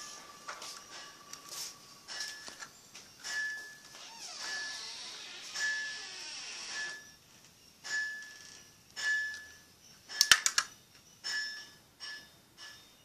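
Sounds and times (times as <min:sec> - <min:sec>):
plastic clicks and knocks: 0:10.2 - 0:10.7.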